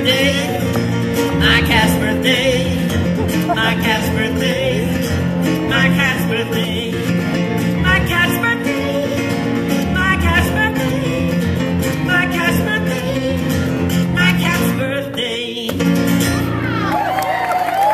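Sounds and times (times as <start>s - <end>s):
acoustic guitar strumming chords: 0.0s - 16.8s
slide guitar gliding phrases: 0.0s - 17.2s.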